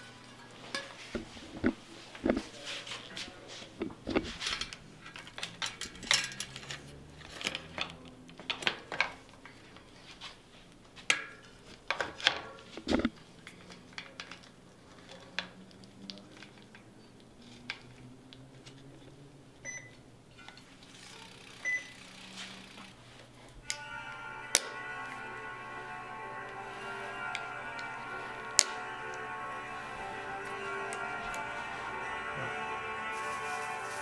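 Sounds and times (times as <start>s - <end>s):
metal clicks and chain clinks: 4.5s - 7.9s.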